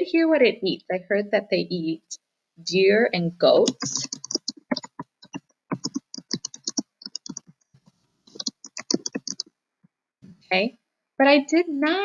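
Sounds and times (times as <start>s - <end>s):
typing on a computer keyboard: 3.6s - 7.6s, 8.4s - 9.5s.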